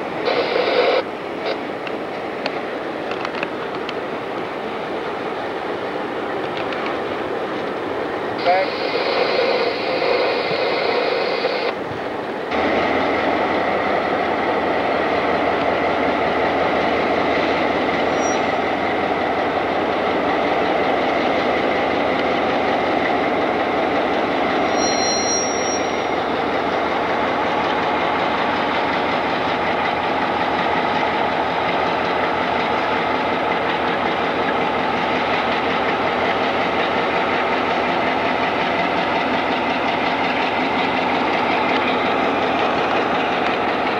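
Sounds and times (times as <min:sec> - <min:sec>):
diesel locomotive engine drone: 0:00.0 - 0:43.9
high squeal: 0:18.0 - 0:18.6, 0:24.6 - 0:26.2.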